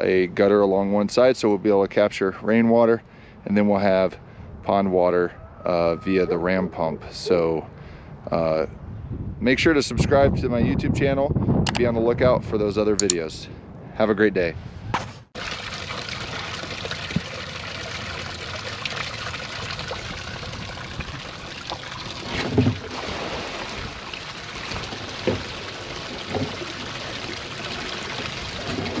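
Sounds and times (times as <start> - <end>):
water trickling and pouring: 15.4 - 29.0.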